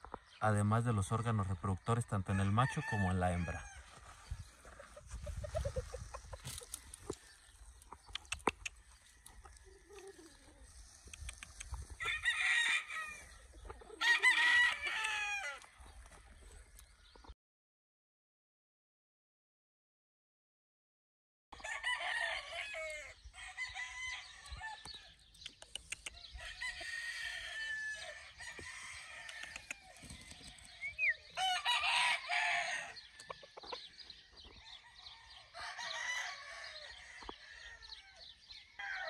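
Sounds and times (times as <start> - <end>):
roosters crowing: 2.2 - 7.7, 11.6 - 15.8, 21.6 - 25.2, 26.2 - 33.8, 34.5 - 39.0.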